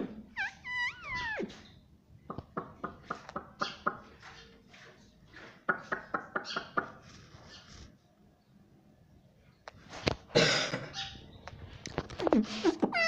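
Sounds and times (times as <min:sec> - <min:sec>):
parrot chattering: 0:00.3 - 0:01.7
parrot whistling: 0:00.4 - 0:01.6.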